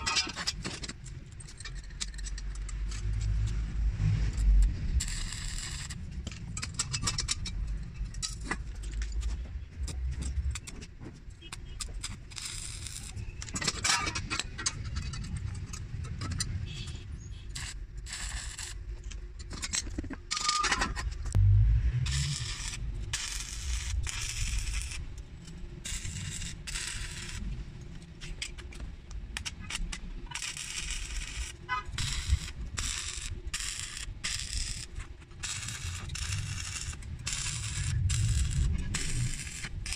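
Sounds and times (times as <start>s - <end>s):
welding arc crackling: 2.7s - 6.8s, 12.0s - 13.3s, 17.5s - 18.9s, 21.3s - 27.6s, 29.4s - 39.9s.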